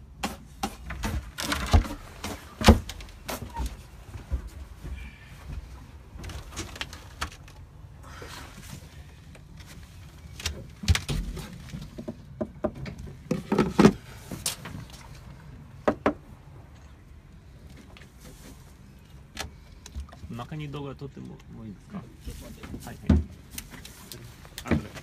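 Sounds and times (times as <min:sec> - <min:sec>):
footsteps on boat deck: 0:02.0 - 0:06.6.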